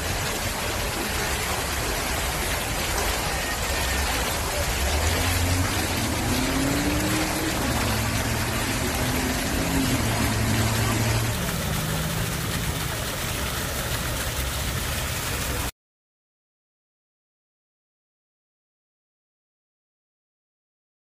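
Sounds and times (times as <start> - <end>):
fountain jets splashing: 0.0 - 15.7
low engine hum: 0.2 - 15.7.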